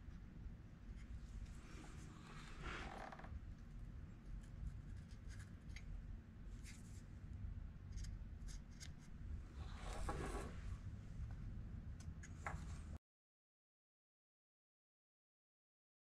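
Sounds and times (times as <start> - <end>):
low steady hum: 0.0 - 13.0
marker scratching on metal: 4.4 - 5.8, 7.9 - 9.1
rubbing sound: 9.6 - 10.7.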